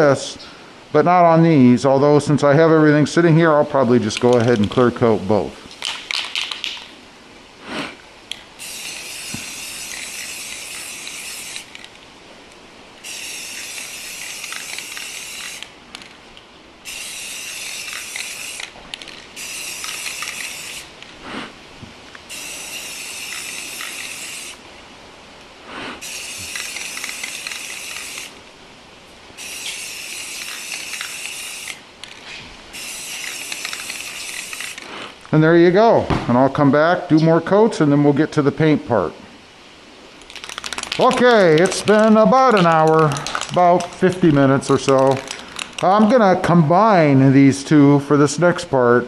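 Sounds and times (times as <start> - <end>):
aerosol spray can hissing: 8.6 - 11.9, 13.0 - 16.1, 16.8 - 21.5, 22.3 - 24.6, 25.7 - 28.4, 29.4 - 31.8, 32.7 - 35.1.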